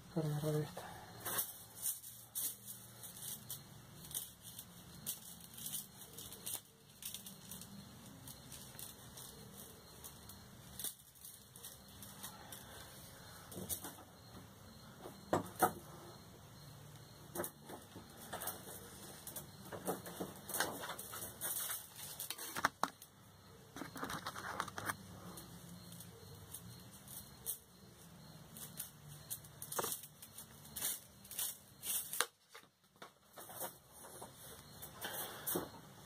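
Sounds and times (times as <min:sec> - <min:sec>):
wire clicks and scrapes: 0:17.3 - 0:23.1, 0:23.8 - 0:27.6.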